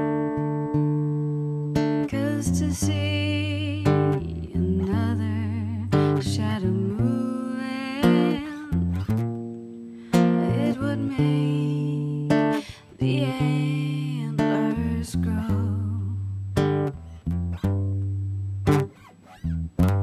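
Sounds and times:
acoustic guitar strumming chords: 0.0 - 20.0
woman singing: 1.9 - 9.1, 10.1 - 16.4.

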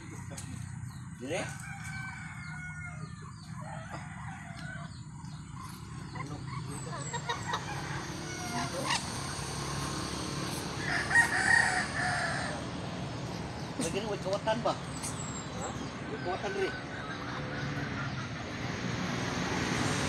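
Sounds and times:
chickens clucking: 0.0 - 19.2
rooster crowing: 1.4 - 5.1, 7.2 - 12.9, 15.8 - 18.1.

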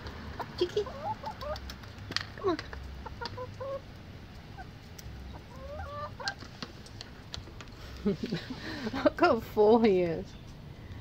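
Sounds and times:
chickens clucking: 0.0 - 9.0
beaks pecking at corn: 0.4 - 8.8.

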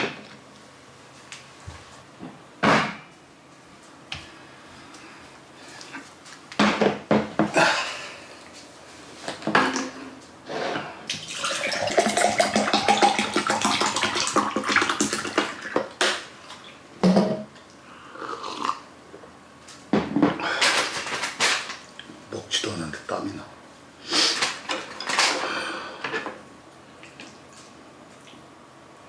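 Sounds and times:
water pouring: 11.1 - 15.7.

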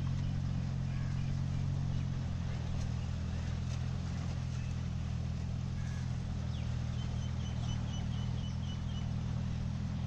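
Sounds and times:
low engine hum: 0.0 - 10.0
bird chirping: 5.8 - 9.2.

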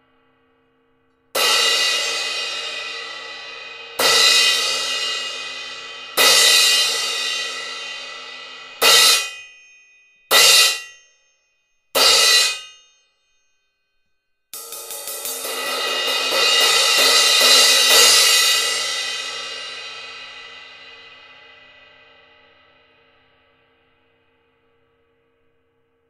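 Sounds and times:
crash cymbal struck with stick: 1.4 - 9.6, 10.3 - 11.0, 12.0 - 13.0, 14.6 - 23.3.

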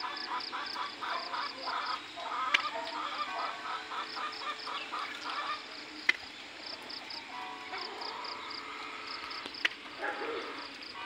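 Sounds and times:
fowl clucking: 0.0 - 5.8.

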